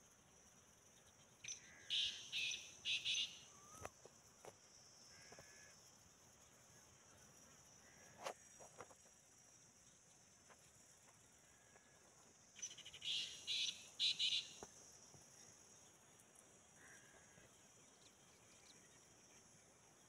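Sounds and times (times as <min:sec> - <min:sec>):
high insect hiss: 0:00.0 - 0:20.0
francolin calling: 0:01.4 - 0:04.0, 0:11.6 - 0:14.7.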